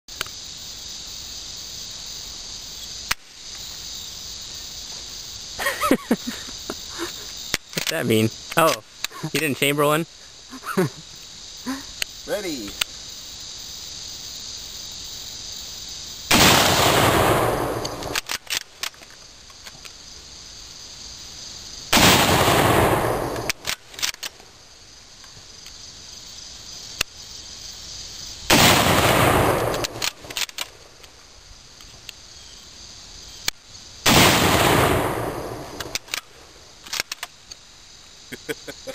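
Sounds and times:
insects chirring: 0.1 - 38.9
rifle shots echoing: 16.3 - 18.3, 21.9 - 23.7, 28.5 - 30.4, 34.0 - 36.0.

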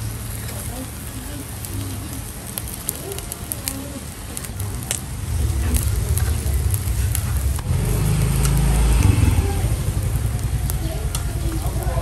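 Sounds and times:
seafood sizzling on grill: 0.0 - 12.0
low rumble: 4.7 - 12.0.

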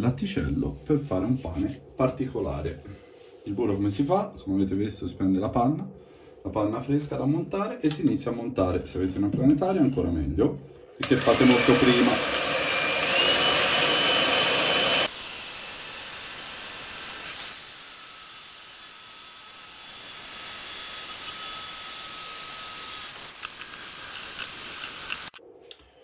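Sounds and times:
electric hand mixer whipping cream: 11.0 - 25.4.

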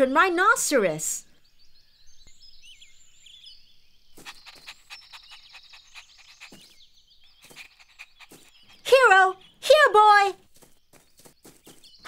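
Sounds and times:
high chirping birds: 0.0 - 12.0
puppy panting: 4.2 - 9.6.

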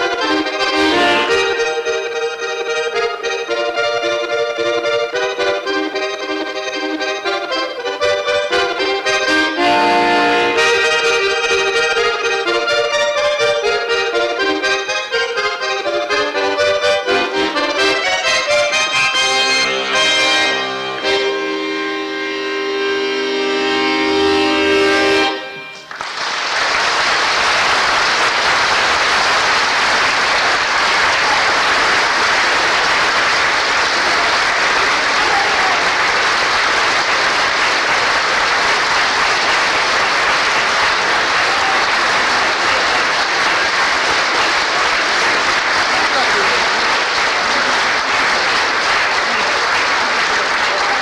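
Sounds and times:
accordion chord: 0.0 - 26.0, 35.8 - 51.0
audience applause: 25.8 - 51.0.

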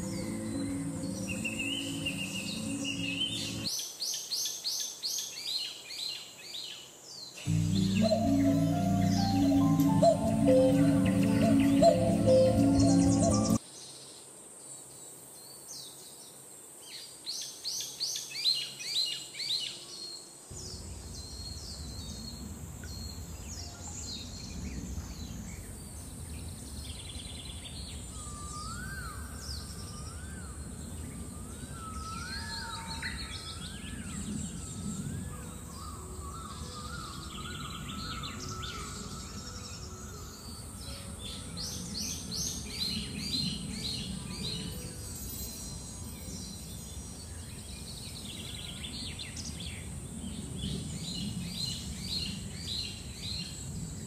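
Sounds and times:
steady background noise: 0.0 - 3.7, 7.4 - 13.6
songbirds chirping: 0.0 - 13.6, 17.1 - 54.0
rising and falling whistle: 7.5 - 13.6.

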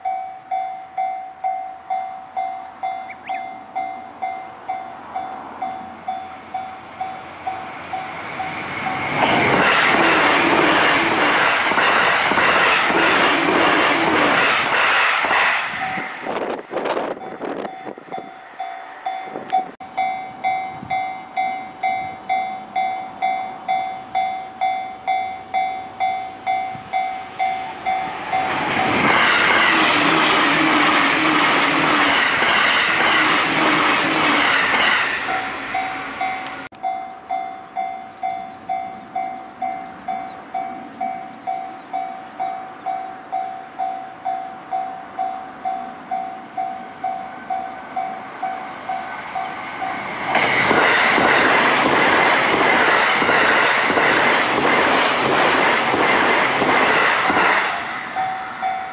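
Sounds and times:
level crossing warning bell: 0.0 - 9.2, 17.0 - 28.9, 35.3 - 50.1, 58.0 - 58.9
train passing at high speed: 0.0 - 58.9.

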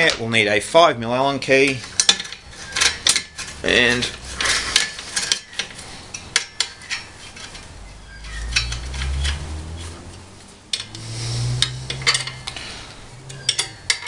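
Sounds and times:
allen key clicking and scraping: 1.7 - 9.4
low rubbing: 2.5 - 6.2, 6.9 - 14.0.

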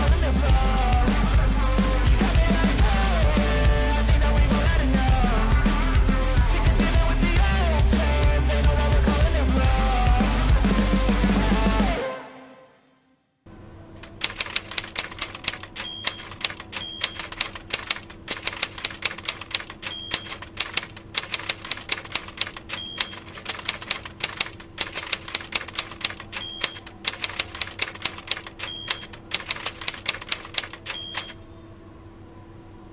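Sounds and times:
typewriter carriage return bell: 14.0 - 31.4
typewriter keystrokes: 14.0 - 31.4.

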